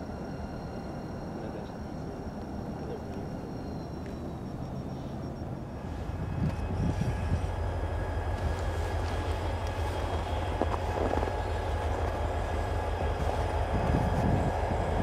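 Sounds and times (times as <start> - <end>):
diesel locomotives rumbling: 0.0 - 15.0.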